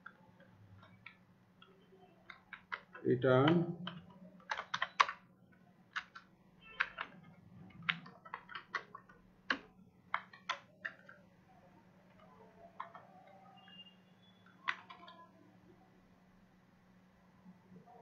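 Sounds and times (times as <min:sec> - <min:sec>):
keyboard keystrokes: 0:02.3 - 0:05.3, 0:05.9 - 0:11.2, 0:12.1 - 0:15.3.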